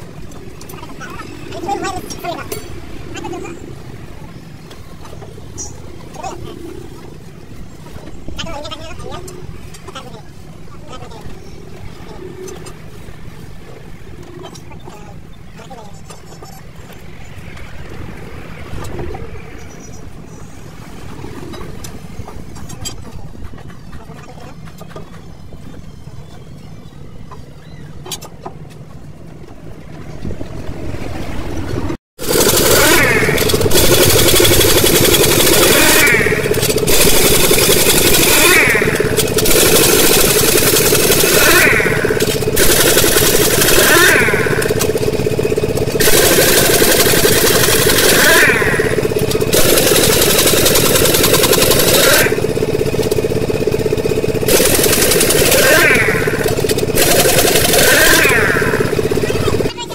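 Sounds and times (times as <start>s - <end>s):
wind rumbling on microphone: 29.6s - 32.0s
wheel spanner clicking on nuts: 32.2s - 59.2s
impact wrench rattling: 32.2s - 59.7s.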